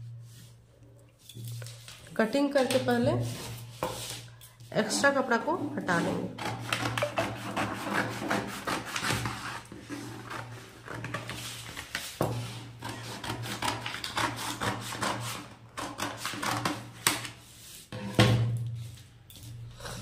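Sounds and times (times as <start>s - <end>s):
paper rustling: 8.8s - 12.6s.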